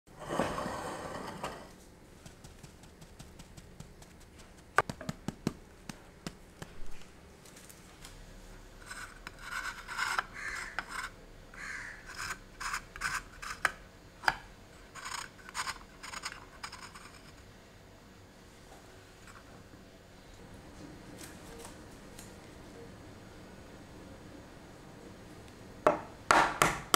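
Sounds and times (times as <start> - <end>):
pen scratching on eggshells: 2.2 - 4.8, 8.8 - 13.7.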